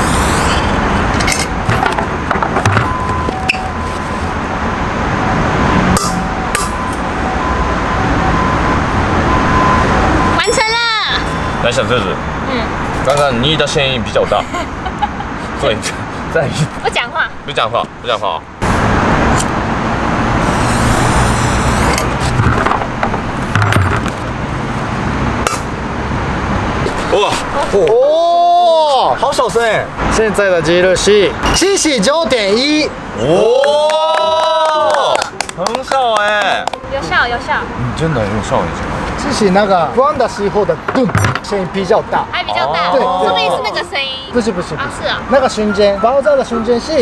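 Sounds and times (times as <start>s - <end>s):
traffic hum: 0.0s - 47.0s
firecracker fuse hissing: 20.4s - 22.4s
handling knocks and scrapes: 21.8s - 24.3s.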